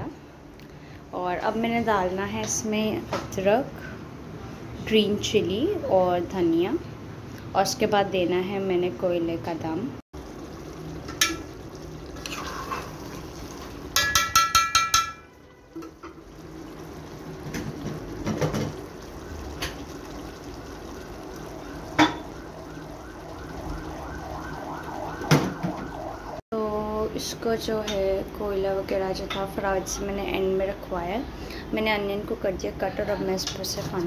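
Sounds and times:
utensil scraping cooking pot: 11.1 - 15.2.

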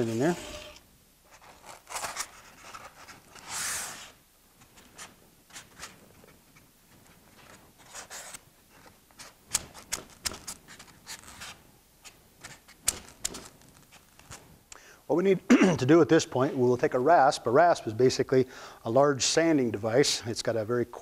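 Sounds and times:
foam rubbing: 0.0 - 2.9
foam pieces clicking and tapping: 9.5 - 10.6, 12.4 - 14.4.

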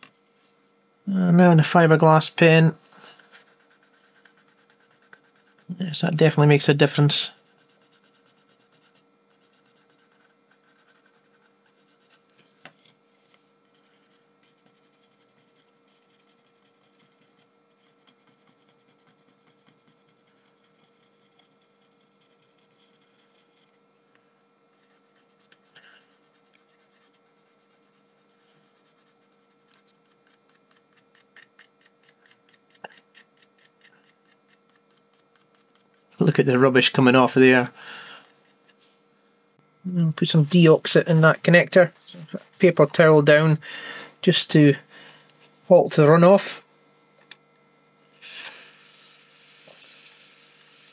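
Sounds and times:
faint steady hum: 0.0 - 50.9
pen scratching circuit board: 3.4 - 5.7, 7.3 - 12.2, 13.7 - 23.7, 24.8 - 36.2.

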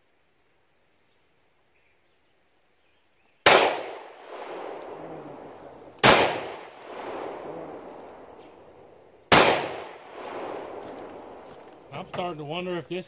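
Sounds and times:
pistol shots echoing: 3.5 - 11.9.

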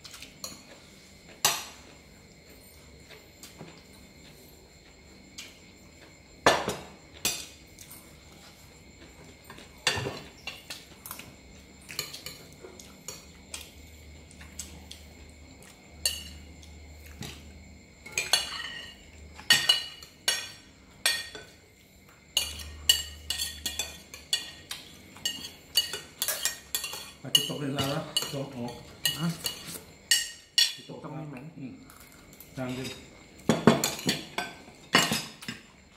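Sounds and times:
spoons clinking on plates: 9.4 - 11.2, 16.0 - 16.5, 18.0 - 21.6, 22.3 - 30.9, 32.7 - 35.7.

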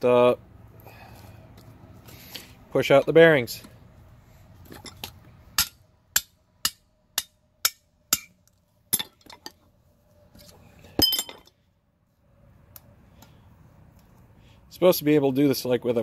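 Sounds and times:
metal ringing clatter: 11.0 - 11.6.

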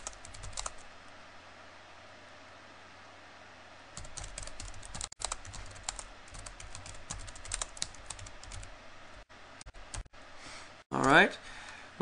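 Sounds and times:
computer keyboard typing: 0.0 - 0.9, 4.0 - 8.7, 9.6 - 10.1, 10.9 - 11.2.

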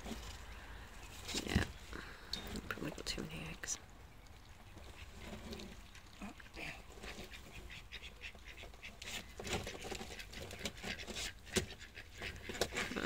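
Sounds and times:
straw rustling: 0.0 - 13.0
hen clucking softly: 4.4 - 13.0.

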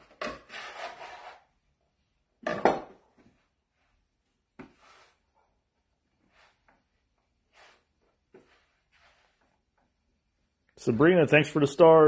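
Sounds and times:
metal scraper scraping wooden board: 0.2 - 1.5.

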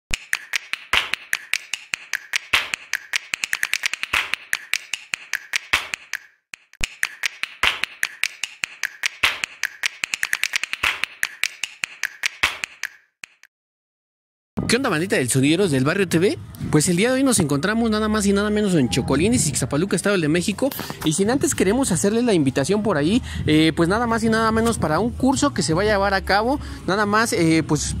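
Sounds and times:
rapid rhythmic clicking: 0.1 - 13.5.

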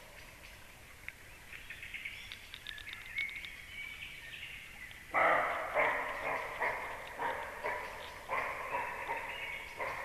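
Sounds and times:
songbirds chirping: 0.0 - 10.0
deer barking: 5.1 - 10.0.

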